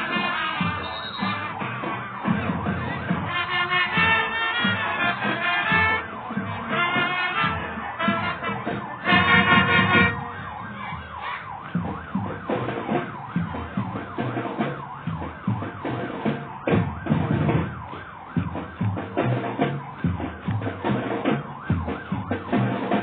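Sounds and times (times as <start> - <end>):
drums beating a steady rhythm: 0.0 - 23.0
held brass chord: 3.2 - 10.6.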